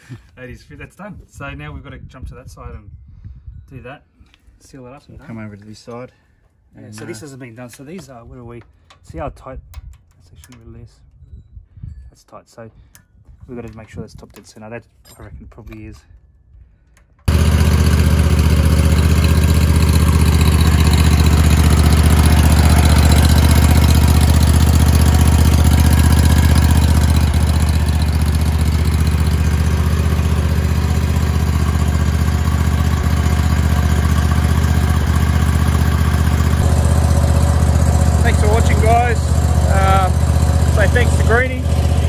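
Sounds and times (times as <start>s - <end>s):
ride-on mower engine running: 17.3s - 42.0s.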